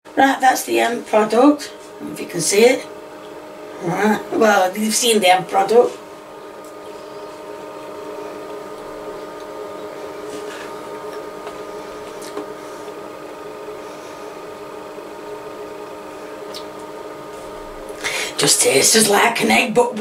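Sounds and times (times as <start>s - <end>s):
appliance electrical hum: 0.1s - 20.0s.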